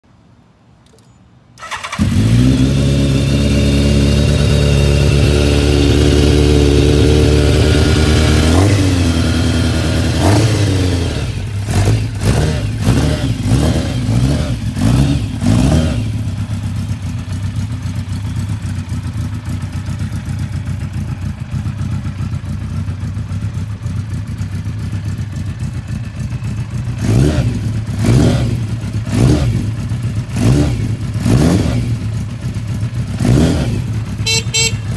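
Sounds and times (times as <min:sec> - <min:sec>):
motorcycle engine idling: 0:16.0 - 0:34.9
engine throttle blips: 0:33.6 - 0:34.9.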